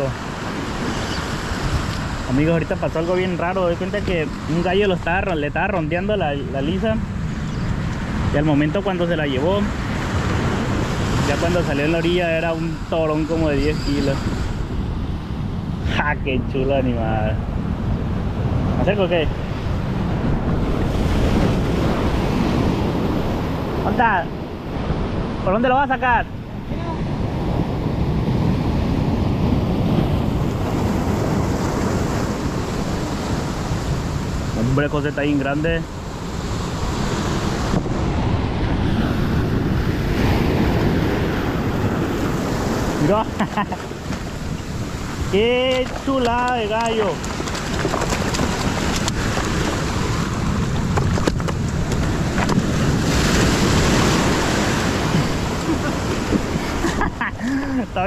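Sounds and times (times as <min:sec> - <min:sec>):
wind buffeting microphone: 0:00.0 - 0:58.0
surf breaking on cobble beach: 0:18.4 - 0:58.0
surf washing over cobbles: 0:40.2 - 0:57.2.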